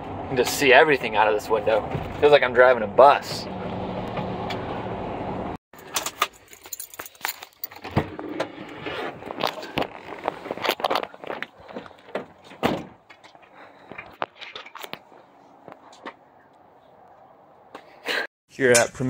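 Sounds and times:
clicks and rattles of handling: 5.8 - 8.0
keys jangling: 6.0 - 7.8.

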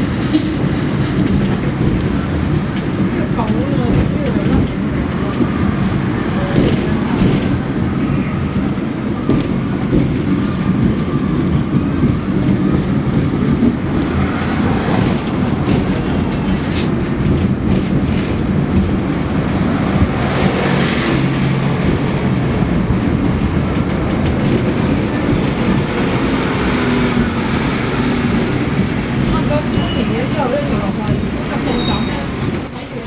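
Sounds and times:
tram rumbling: 0.0 - 33.0
wheels clacking on rails: 0.0 - 33.0.

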